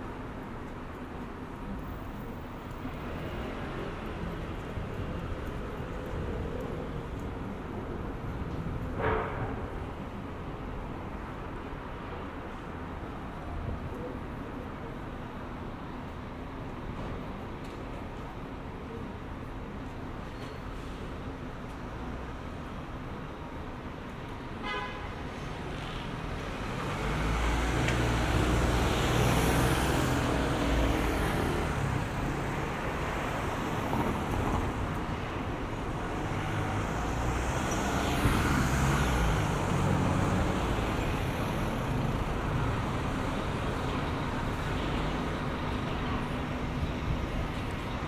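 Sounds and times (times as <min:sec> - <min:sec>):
traffic passing close by: 0:24.6 - 0:48.0.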